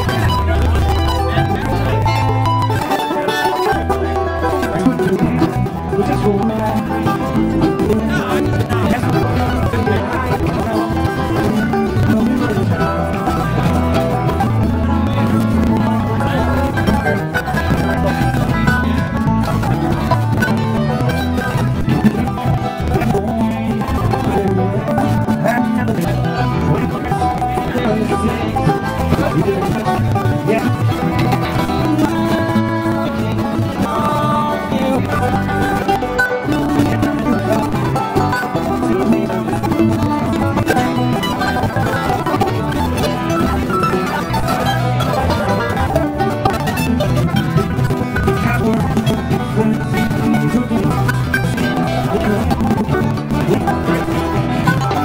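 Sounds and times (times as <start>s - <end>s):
bluegrass band playing: 0.0s - 55.0s.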